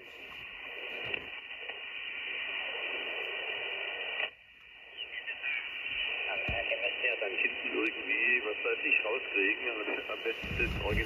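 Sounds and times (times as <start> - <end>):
faint radio signals: 0.0 - 11.0
radio band noise hiss: 0.0 - 11.0.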